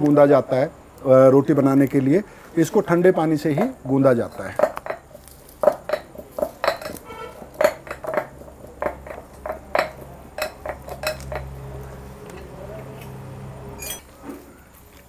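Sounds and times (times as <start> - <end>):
bangles clinking on steel plate: 4.2 - 11.6, 13.8 - 14.1.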